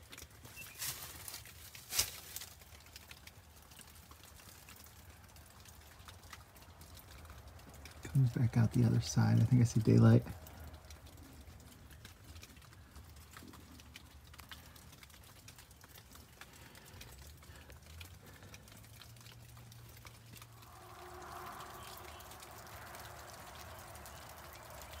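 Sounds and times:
footsteps on rock and wet leaves: 0.0 - 2.8
rainwater dripping: 0.0 - 25.0
soft hiss: 19.6 - 25.0.

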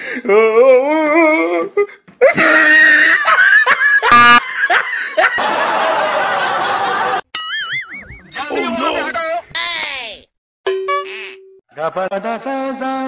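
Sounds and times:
people laughing: 2.3 - 7.2.

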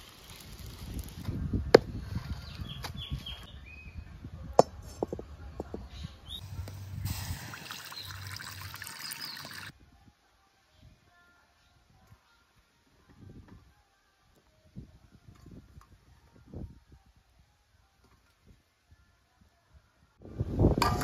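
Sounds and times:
water pouring into a pan: 7.1 - 9.7.

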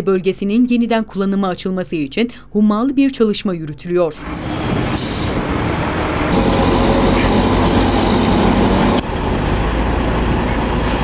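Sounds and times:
diesel engine running: 4.2 - 11.0.

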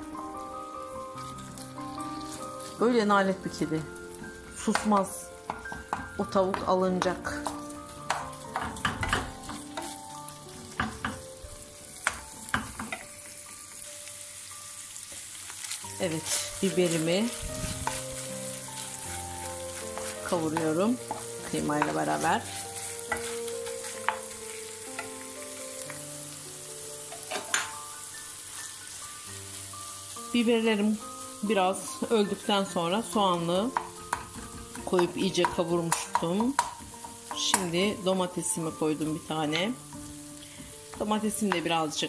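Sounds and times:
meat sizzling in a frying pan: 0.0 - 42.0
soft background music: 0.0 - 42.0
wooden spoon stirring: 15.2 - 26.0
wooden spatula scraping pan: 16.2 - 25.1.

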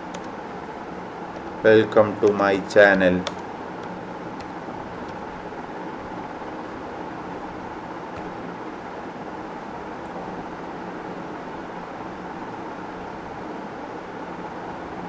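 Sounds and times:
keyboard clicks: 0.0 - 0.3, 3.2 - 5.2.

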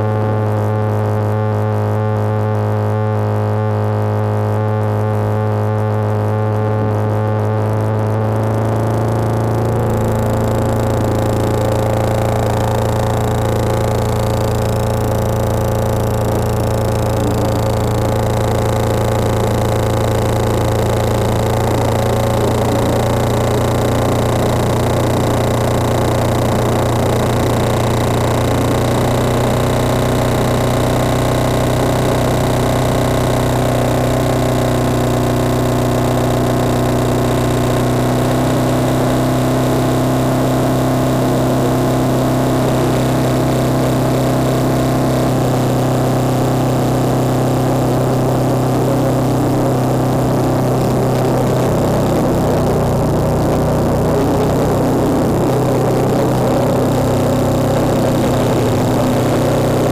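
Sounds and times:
distorted synthesizer drone: 0.0 - 59.9
filtered noise bed: 0.0 - 59.9
high synth tone sweeping: 9.1 - 28.7, 42.3 - 59.9.

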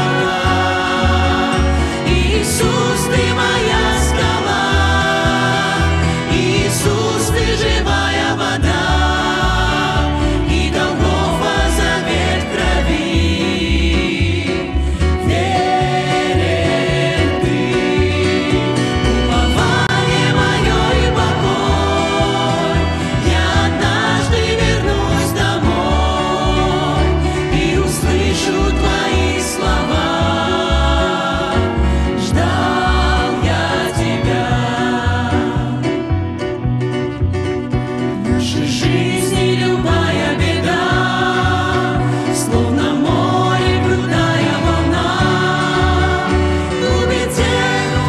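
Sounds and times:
mixed group singing a hymn: 0.0 - 36.7, 38.2 - 48.0
acoustic guitar: 0.0 - 48.0
double bass: 0.0 - 48.0
keyboard: 0.0 - 48.0
violin: 0.0 - 48.0.

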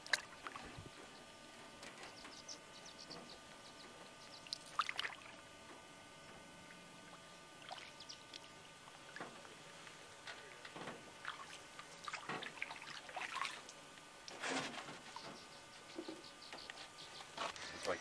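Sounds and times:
water splashes and drips: 0.0 - 0.7, 4.5 - 5.3, 7.6 - 8.4, 10.8 - 13.8.

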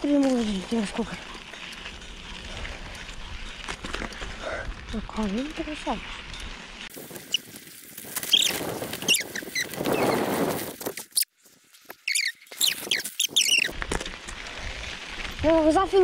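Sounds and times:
tyres rolling on dirt: 0.0 - 16.0
disc brakes squealing: 8.2 - 10.3, 12.0 - 13.8.

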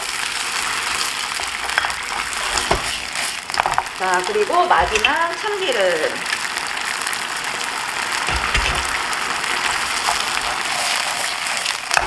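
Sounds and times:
vegetables sizzling in frying pan: 0.0 - 12.0
wooden spatula stirring: 0.4 - 5.4, 8.3 - 12.0.

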